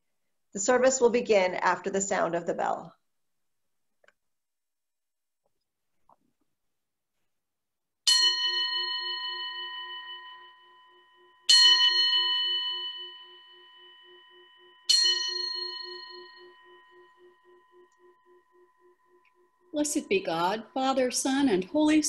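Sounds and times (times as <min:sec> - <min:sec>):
bell ringing: 0:08.1 - 0:22.0.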